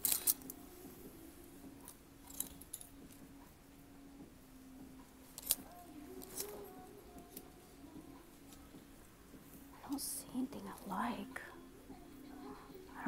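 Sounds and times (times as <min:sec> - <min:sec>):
hangers clinking on metal rack: 0:00.0 - 0:00.6, 0:02.2 - 0:03.0
faint steady hum: 0:00.0 - 0:13.0.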